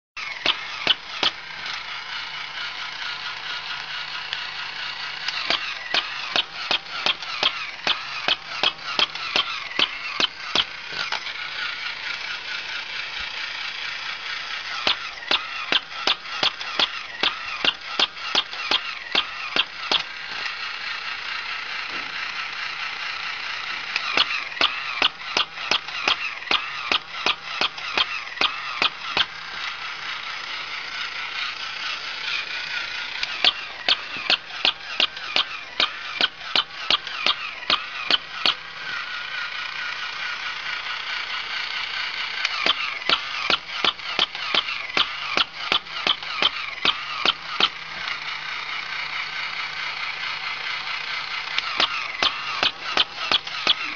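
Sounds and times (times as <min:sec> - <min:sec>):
toy motor and gears whirring: 0:00.2 - 0:53.9
rapid clicking: 0:02.8 - 0:11.4, 0:13.7 - 0:20.2, 0:23.9 - 0:29.4, 0:30.8 - 0:38.6, 0:42.0 - 0:48.2, 0:51.4 - 0:53.9.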